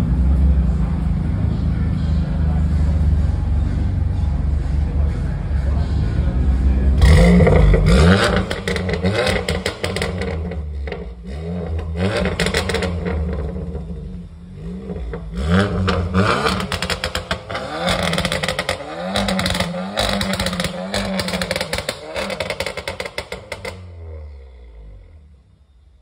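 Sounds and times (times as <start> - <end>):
car engine revving: 0.0 - 25.8
exhaust pops and crackles: 7.1 - 13.8, 15.0 - 23.9.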